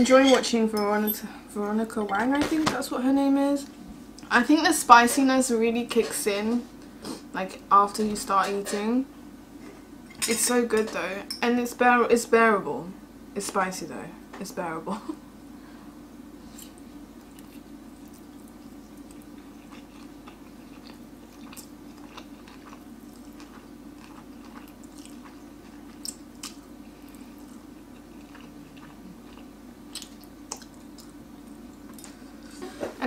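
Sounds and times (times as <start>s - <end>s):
steady low hum: 0.0s - 33.0s
person chewing noodles: 16.6s - 32.4s.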